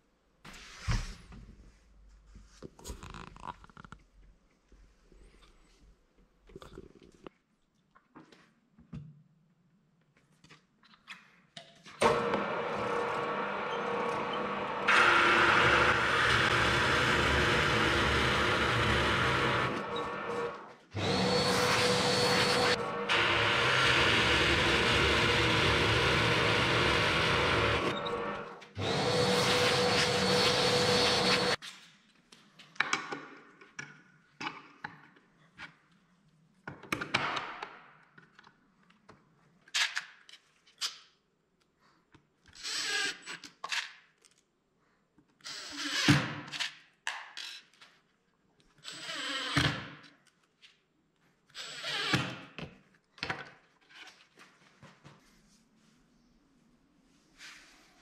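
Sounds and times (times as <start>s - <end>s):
cordless drill driving screws: 12.0s - 31.6s
drill press boring into wood: 12.0s - 31.6s.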